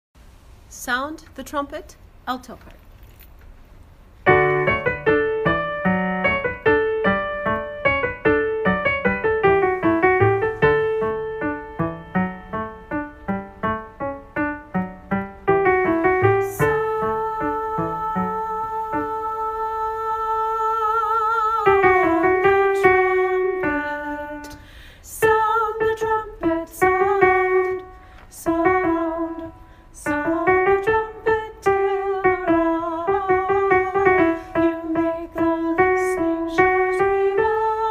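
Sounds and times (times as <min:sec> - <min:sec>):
piano: 0:04.0 - 0:37.9
person singing with vibrato: 0:15.8 - 0:37.9.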